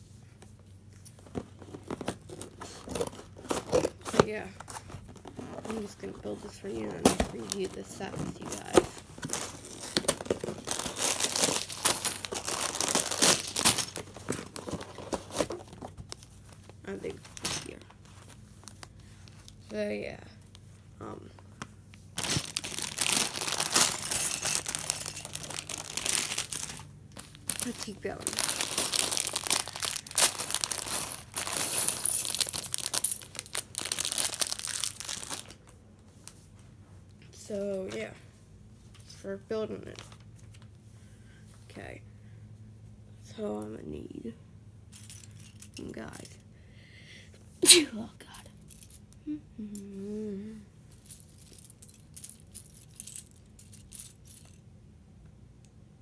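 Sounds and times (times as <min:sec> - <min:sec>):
plastic bag crinkling: 0:01.3 - 0:16.1, 0:22.2 - 0:35.7.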